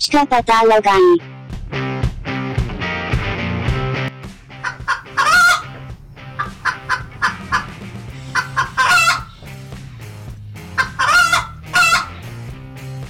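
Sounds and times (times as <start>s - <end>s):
hen clucking and squawking: 4.6s - 9.6s, 10.6s - 12.3s.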